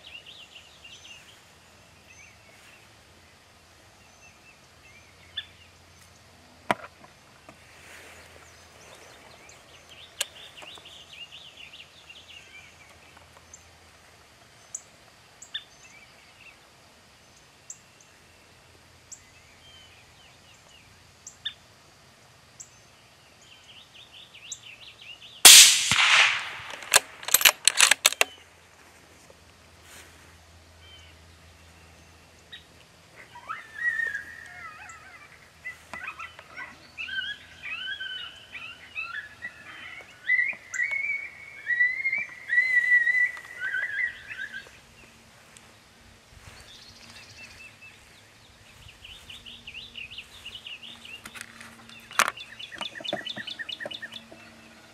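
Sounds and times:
suppressed rifle shot: 25.5 - 28.2
sharp clicks: 25.5 - 28.4
high gliding whistle-like calls: 33.2 - 44.8.

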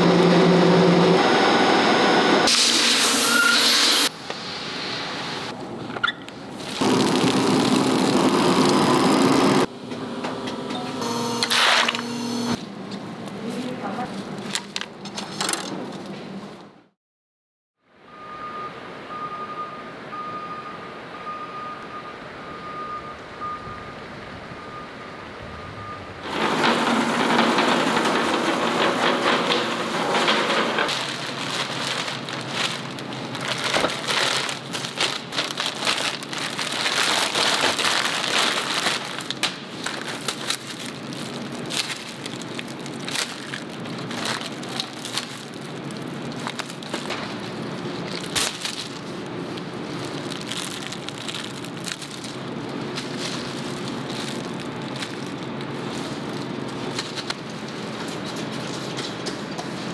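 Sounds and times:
plastic bag crinkling: 6.6 - 9.7, 30.8 - 59.0.

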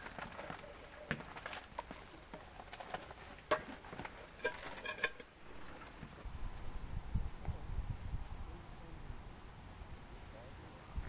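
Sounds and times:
metal cookware knocks and clicks: 4.4 - 5.3.

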